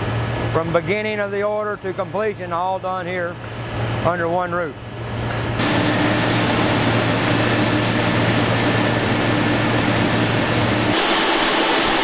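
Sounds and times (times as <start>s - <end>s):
low machine hum: 0.0s - 12.0s
machine milling steel: 5.6s - 12.0s.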